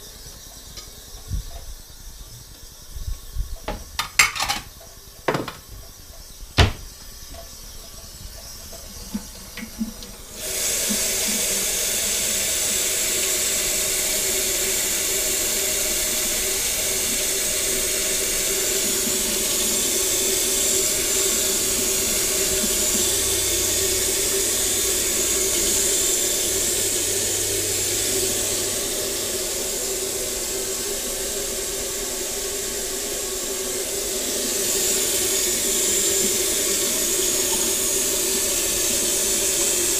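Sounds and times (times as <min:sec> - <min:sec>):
faucet running into metal sink: 0:00.0 - 0:39.9
glass knock: 0:06.6 - 0:06.8.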